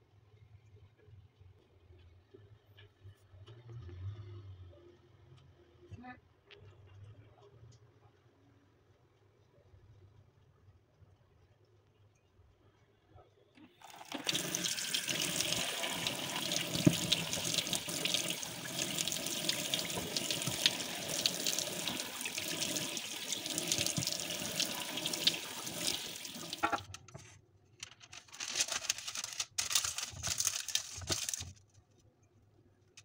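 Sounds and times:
tap water splashing in sink: 0:13.8 - 0:26.9
parchment paper rustling: 0:13.9 - 0:32.0.

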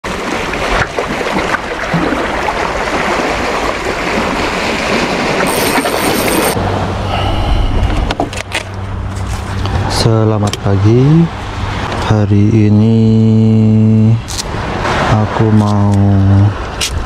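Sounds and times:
wind rushing on microphone: 0:03.2 - 0:08.5.

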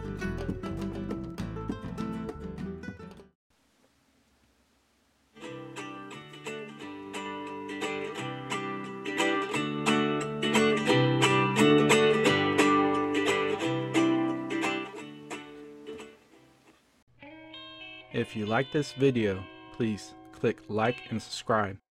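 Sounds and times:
acoustic guitar music: 0:05.4 - 0:20.5.

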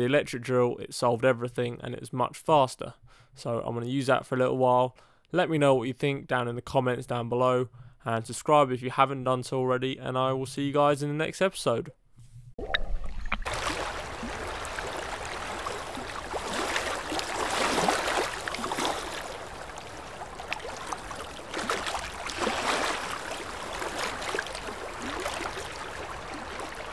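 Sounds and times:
water rushing and splashing: 0:12.6 - 0:26.9.

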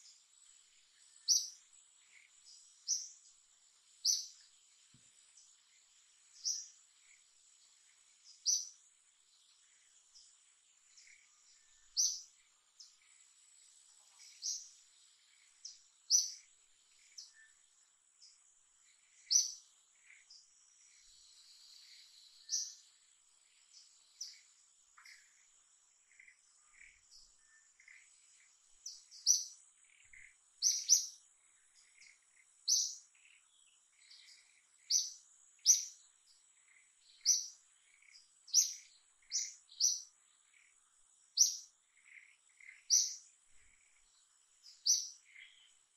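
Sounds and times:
sharp bird chirps: 0:01.0 - 0:03.2, 0:19.1 - 0:22.9, 0:26.1 - 0:36.1, 0:36.7 - 0:40.7, 0:41.4 - 0:45.8.

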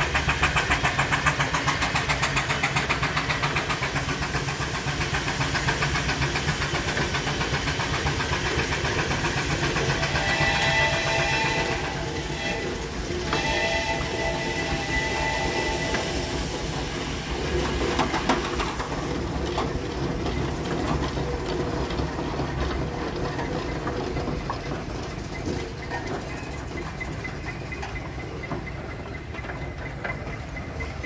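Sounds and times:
steam engine rumbling: 0:00.0 - 0:31.0
steam hissing: 0:00.0 - 0:31.0.

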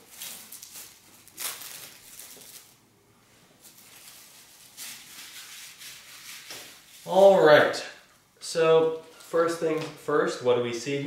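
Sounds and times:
plastic wrap crinkling: 0:00.0 - 0:02.8, 0:03.6 - 0:07.4.

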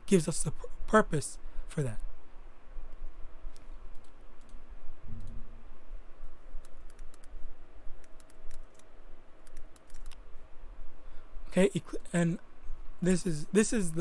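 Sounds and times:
keyboard key clicks: 0:09.4 - 0:10.2.

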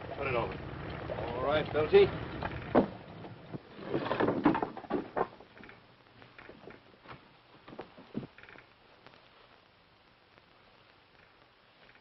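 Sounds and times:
wooden ladder knocking and creaking: 0:02.6 - 0:08.6.

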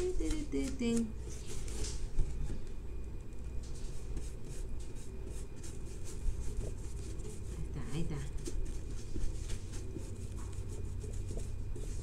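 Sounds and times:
steady low hum: 0:00.0 - 0:12.0
paintbrush scratching cardboard: 0:03.8 - 0:12.0.

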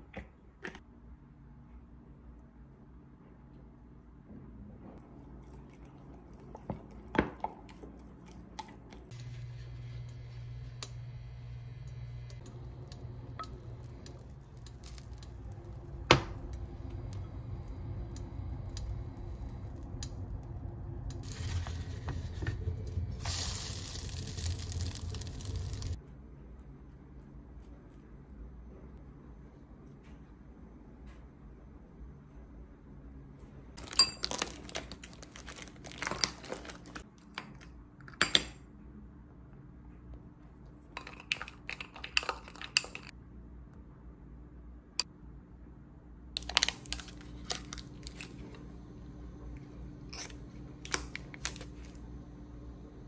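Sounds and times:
low hum: 0:08.8 - 0:34.4
pancakes sizzling: 0:09.1 - 0:16.0, 0:21.2 - 0:26.0.

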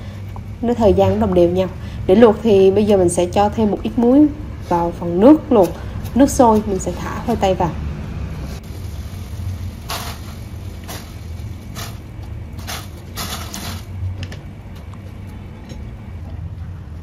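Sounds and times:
water boiling in a pot: 0:08.3 - 0:14.3.

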